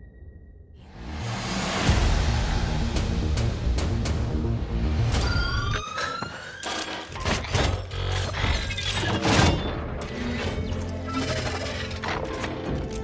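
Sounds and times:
low music: 0:00.8 - 0:05.2
mechanical clicks clanks and whirs: 0:05.1 - 0:13.0.

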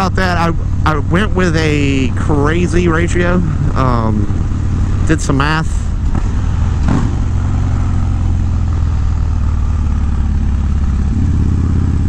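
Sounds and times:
motorcycle engine cruising: 0:00.0 - 0:12.0.

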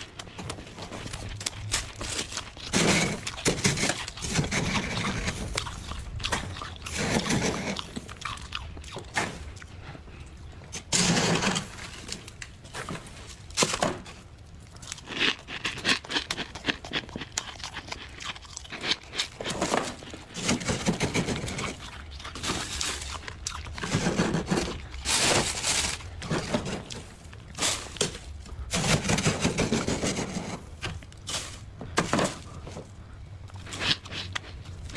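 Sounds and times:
knife scraping frost: 0:01.7 - 0:05.6, 0:10.8 - 0:12.2, 0:27.6 - 0:30.7.

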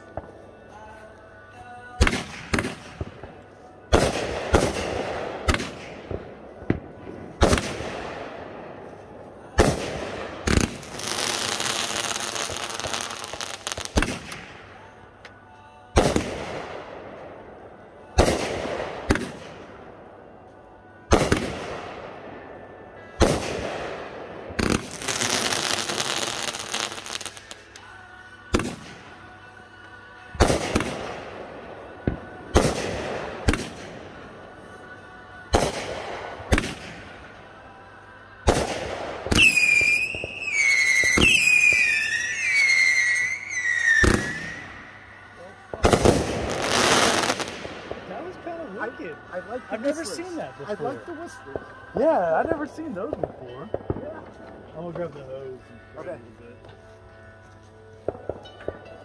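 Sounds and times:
firework bangs: 0:03.9 - 0:08.4, 0:09.5 - 0:14.6, 0:16.0 - 0:17.0, 0:18.1 - 0:19.7, 0:21.1 - 0:22.1, 0:23.0 - 0:27.7, 0:30.4 - 0:31.4, 0:32.0 - 0:34.2, 0:35.5 - 0:37.2, 0:38.4 - 0:44.8, 0:45.7 - 0:48.2
dense firework crackling: 0:03.9 - 0:14.6, 0:21.1 - 0:22.1, 0:23.0 - 0:27.9, 0:30.4 - 0:34.2, 0:38.4 - 0:44.9, 0:45.7 - 0:50.4
whistling firework shells: 0:38.7 - 0:44.9.

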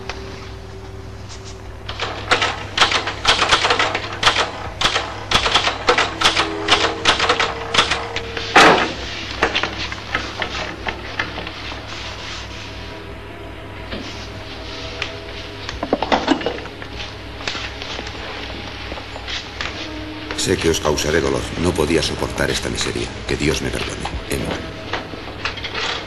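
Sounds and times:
typewriter keys clacking: 0:01.9 - 0:08.1
heavy typewriter clunk: 0:01.9 - 0:11.0.

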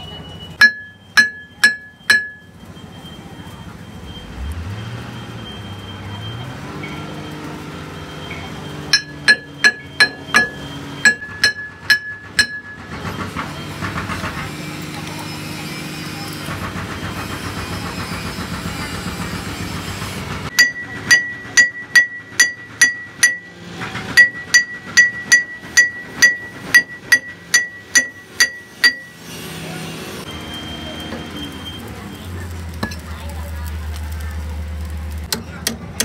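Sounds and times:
hammer blows on steel: 0:00.6 - 0:02.5, 0:08.8 - 0:13.0.

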